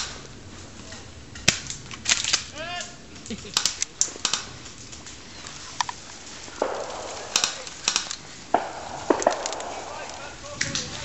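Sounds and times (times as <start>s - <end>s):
sharp clicks: 1.4s - 11.0s
dry leaves crunching and rustling: 4.7s - 11.0s.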